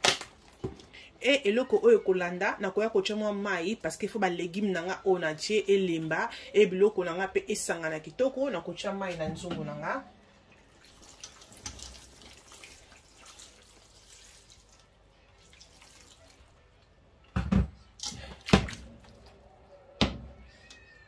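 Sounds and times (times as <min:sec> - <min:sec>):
water pouring into a pot: 0:10.6 - 0:16.6.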